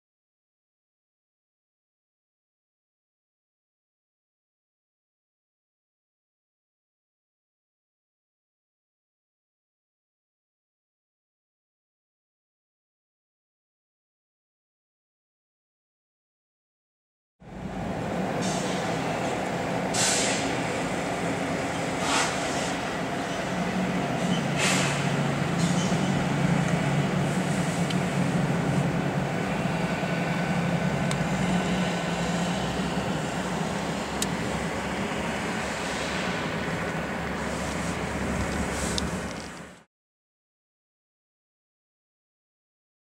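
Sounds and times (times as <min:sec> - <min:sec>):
locomotive engines droning: 0:17.4 - 0:39.8.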